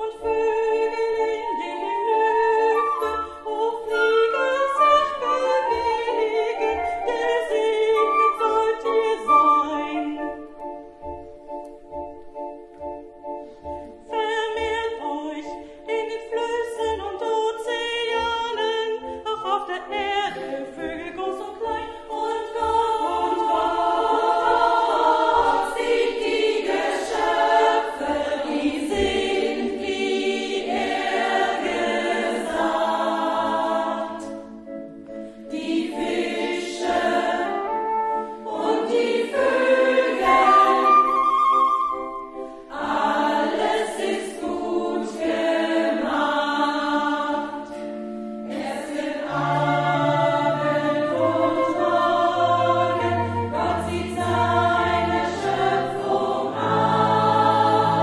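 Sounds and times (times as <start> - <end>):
women's choir singing: 0.0 - 10.5, 14.1 - 58.0
soprano singing: 0.0 - 13.2, 13.8 - 47.6, 48.2 - 58.0
flute trill: 40.1 - 42.4, 49.5 - 53.9.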